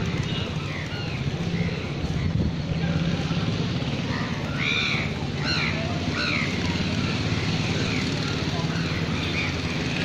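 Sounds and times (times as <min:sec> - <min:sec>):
low traffic rumble: 0:00.0 - 0:10.0
crow cawing: 0:04.2 - 0:06.6.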